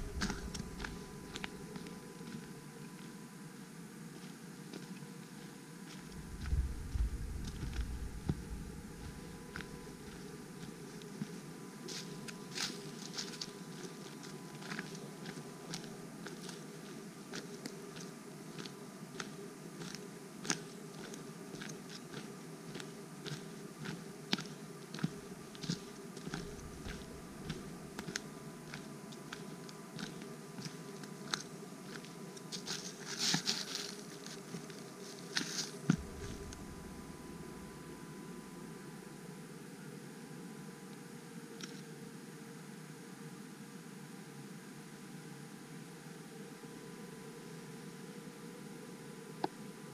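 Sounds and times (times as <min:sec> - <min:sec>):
footsteps on dry leaves: 0:00.0 - 0:01.9, 0:06.1 - 0:10.2, 0:26.2 - 0:28.2, 0:32.6 - 0:34.4, 0:35.4 - 0:38.0.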